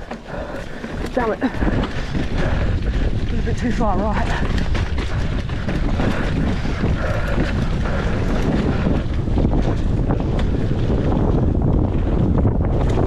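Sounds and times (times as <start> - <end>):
bike clicks and rattles: 0.0 - 13.0
wind rushing over microphone: 0.0 - 13.0.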